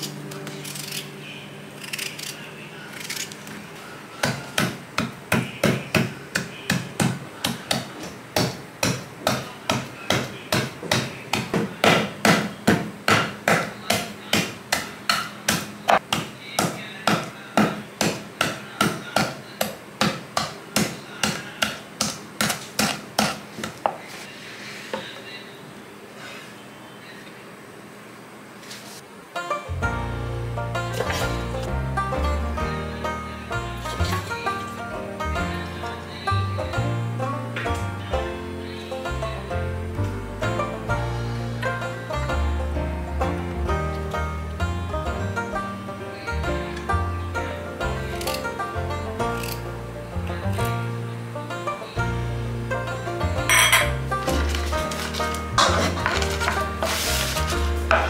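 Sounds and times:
stone pounding on wooden board: 0:04.2 - 0:23.4.

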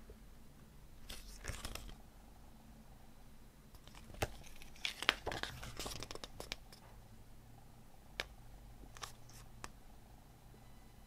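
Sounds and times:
paper pages rustling: 0:01.0 - 0:02.0, 0:03.8 - 0:06.7, 0:08.9 - 0:09.5.

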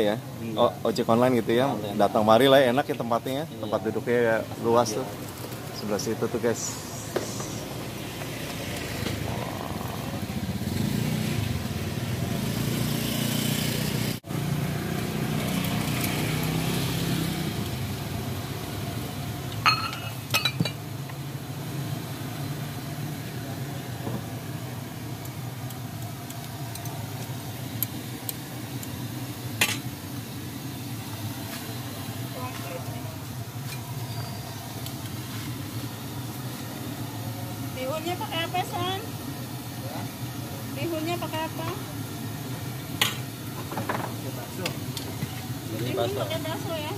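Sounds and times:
bowls and utensils clinking: 0:19.6 - 0:20.8.

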